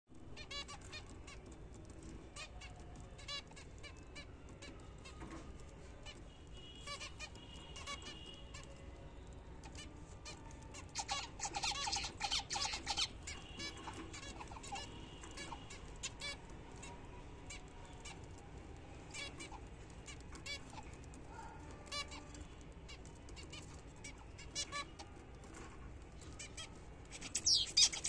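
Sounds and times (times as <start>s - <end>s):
finches nasal beeping calls: 26.6s - 28.0s.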